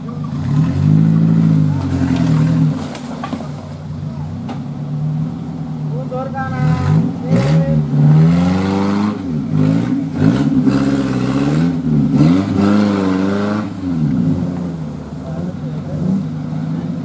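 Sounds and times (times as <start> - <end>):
off-road vehicle engine revving: 0.0 - 17.0.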